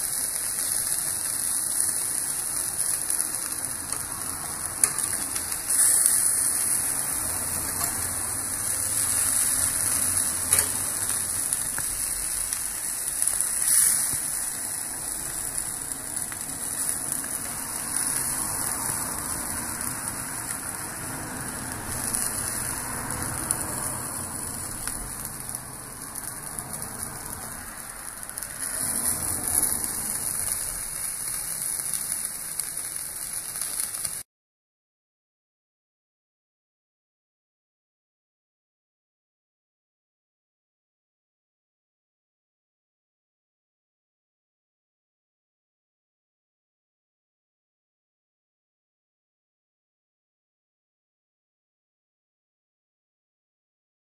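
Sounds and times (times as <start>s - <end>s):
sausages sizzling on a grill: 0.0s - 34.3s.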